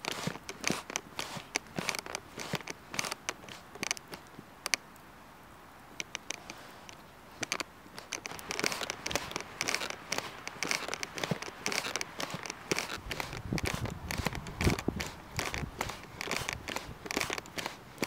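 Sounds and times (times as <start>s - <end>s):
charcoal fire crackling and popping: 0.0s - 5.0s, 5.8s - 18.0s.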